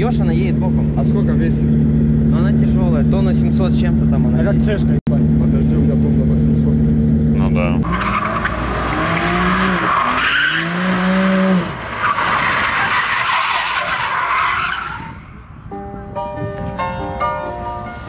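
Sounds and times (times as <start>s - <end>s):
car engine revving: 0.0s - 13.2s
music: 15.7s - 18.0s.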